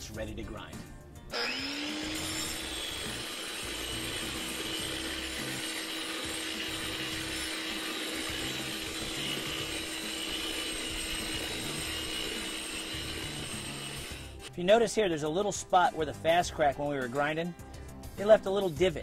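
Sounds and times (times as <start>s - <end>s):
angle grinder grinding concrete: 1.2s - 14.6s.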